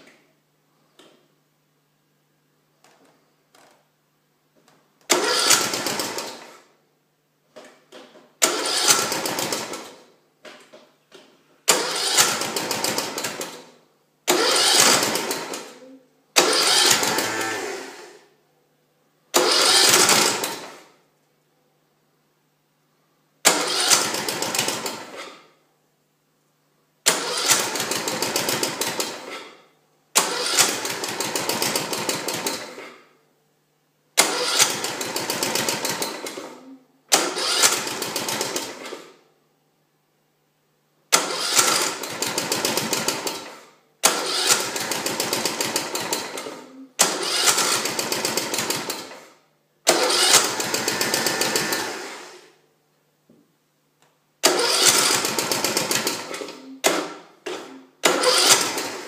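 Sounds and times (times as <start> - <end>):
engine being cranked: 5.1 - 6.6, 8.4 - 10.0, 11.7 - 13.6, 14.3 - 15.8, 16.4 - 18.0, 19.4 - 20.8, 23.5 - 25.3, 27.1 - 29.5, 30.2 - 32.9, 34.2 - 39.0, 41.1 - 49.3, 49.9 - 52.4, 54.4 - 59.0.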